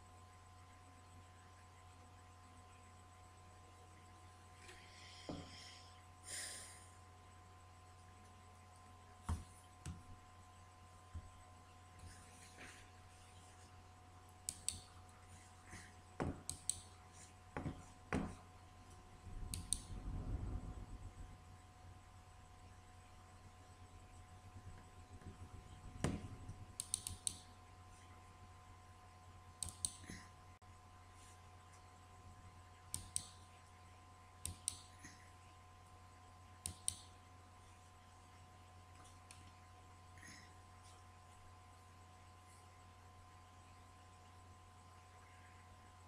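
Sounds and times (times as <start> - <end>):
faint steady hum: 0.0 - 46.0
computer mouse clicks: 14.5 - 15.0, 16.3 - 17.0, 19.4 - 20.0, 26.8 - 27.5, 29.6 - 30.1, 32.9 - 33.4, 34.4 - 34.9, 36.6 - 37.2.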